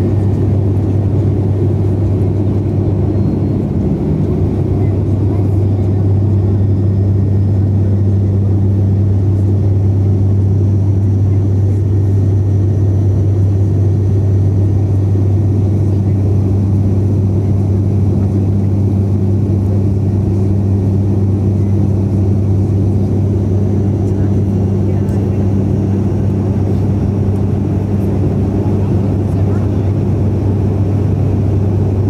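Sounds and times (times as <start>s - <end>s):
turboprop engine and propeller drone: 0.0s - 32.0s.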